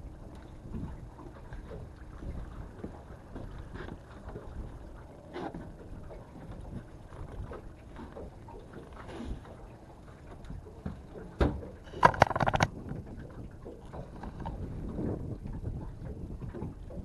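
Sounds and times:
wind rumbling on microphone: 0:00.0 - 0:17.0
gear knocking and rattling: 0:12.0 - 0:12.7.

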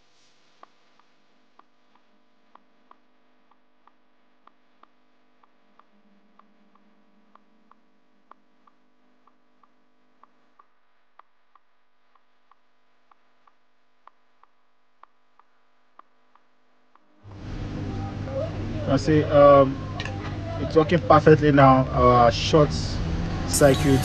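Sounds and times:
faint electrical hum: 0:00.0 - 0:24.0
soft regular ticking: 0:00.6 - 0:17.1.

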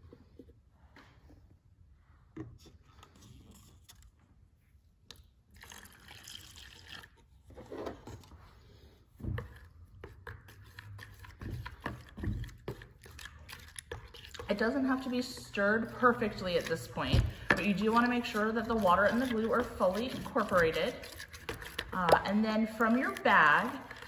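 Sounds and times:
hot water pouring into bowl: 0:05.6 - 0:07.3
metal spoon stirring in bowl: 0:09.4 - 0:24.0.

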